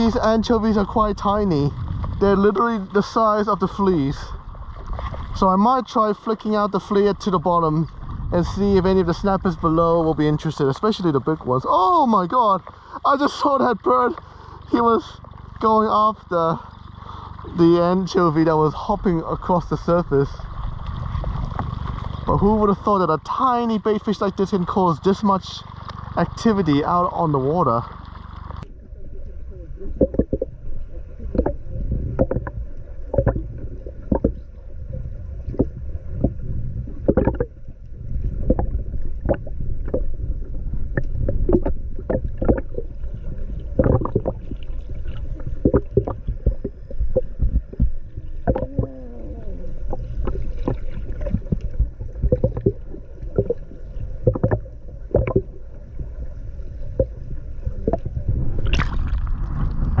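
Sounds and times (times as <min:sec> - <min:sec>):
water splash: 0:00.0 - 0:23.0, 0:23.8 - 0:28.7, 0:31.2 - 1:00.0
underwater rumble of moving water: 0:00.0 - 1:00.0
underwater clicks and knocks: 0:20.7 - 0:22.3, 0:30.0 - 0:30.5, 0:31.2 - 0:34.6, 0:35.4 - 0:49.0, 0:49.8 - 0:55.7, 0:56.9 - 1:00.0.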